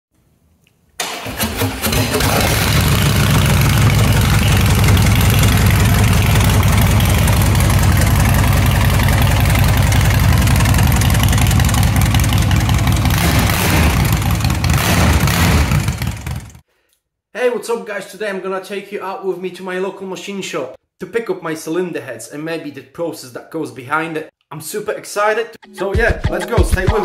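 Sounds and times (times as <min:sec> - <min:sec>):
motorcycle engine idling: 0:02.2 - 0:16.6.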